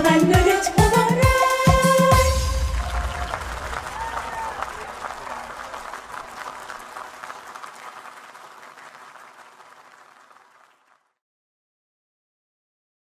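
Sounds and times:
crowd applause: 0:02.2 - 0:11.2.

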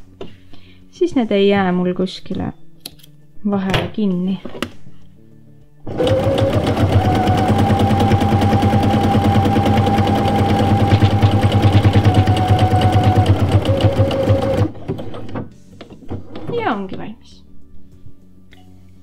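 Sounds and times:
sewing machine running: 0:05.9 - 0:15.3.

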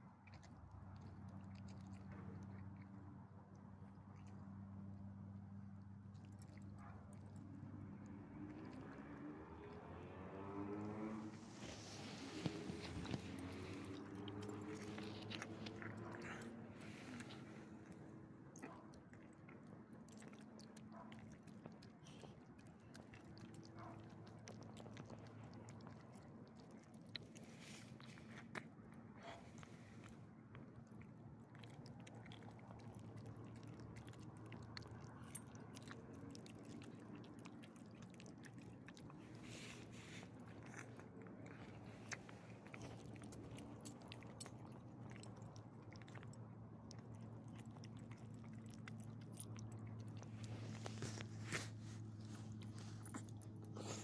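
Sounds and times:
dog licking and chewing: 0:00.0 - 0:54.0.

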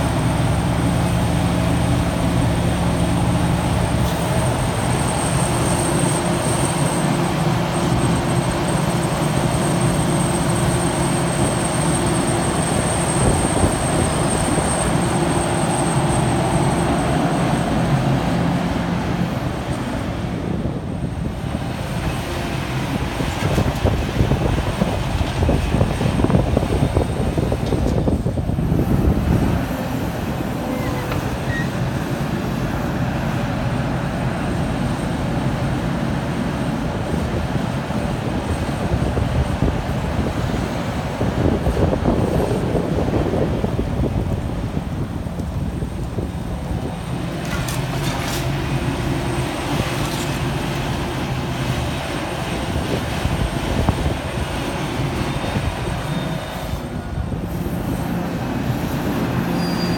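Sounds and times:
excavator diesel engine and hydraulics: 0:00.0 - 0:59.9.

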